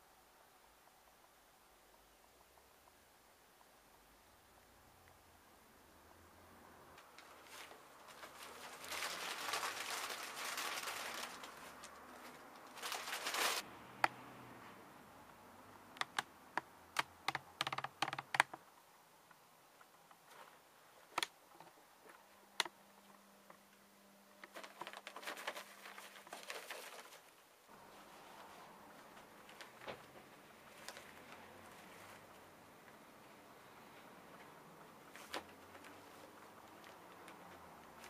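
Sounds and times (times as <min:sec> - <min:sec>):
rabbit rustling through hay: 0:07.0 - 0:13.6, 0:20.2 - 0:21.2, 0:24.4 - 0:33.0, 0:33.7 - 0:38.0
sharp clicks and crunches: 0:16.0 - 0:18.6, 0:19.8 - 0:23.2, 0:24.4 - 0:27.4.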